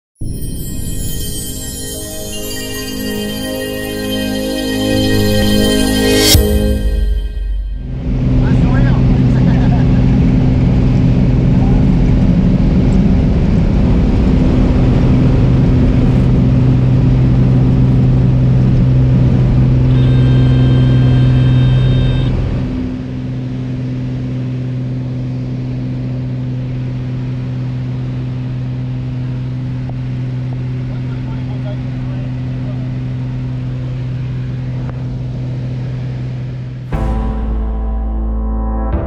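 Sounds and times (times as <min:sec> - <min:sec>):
brief high tone: 0:00.2 - 0:09.3, 0:19.7 - 0:23.2
propeller aircraft engine drone: 0:00.3 - 0:38.3.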